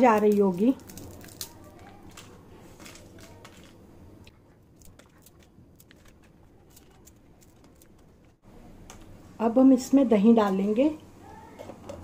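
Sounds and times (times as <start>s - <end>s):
crispy potato crackling when broken: 0.0s - 3.8s, 4.7s - 8.1s.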